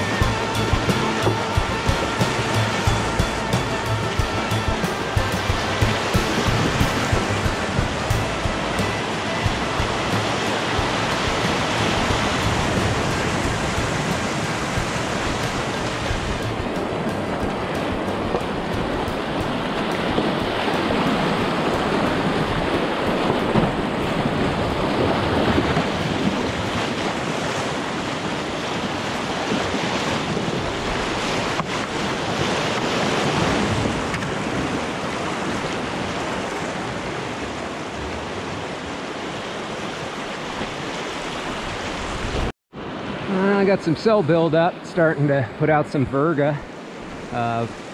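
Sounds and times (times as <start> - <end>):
wind buffeting microphone: 0.0 - 43.2
creek rushing over rapids: 0.0 - 47.9.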